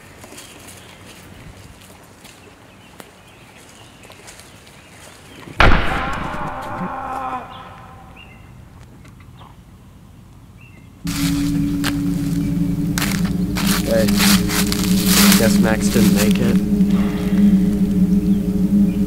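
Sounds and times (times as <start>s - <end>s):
loud hit with ringing tail: 5.6s - 8.3s, 11.1s - 19.0s.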